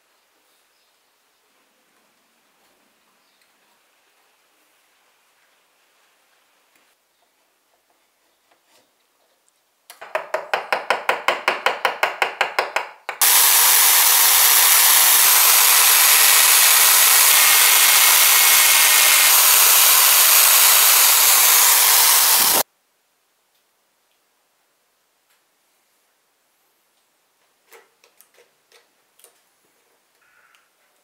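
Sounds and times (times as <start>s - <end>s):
drill press boring: 13.2s - 22.6s.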